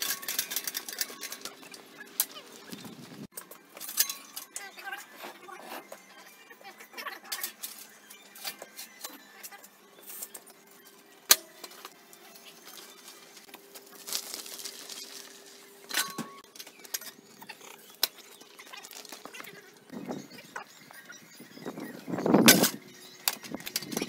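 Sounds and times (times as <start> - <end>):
hand truck rolling: 0.0 - 5.8.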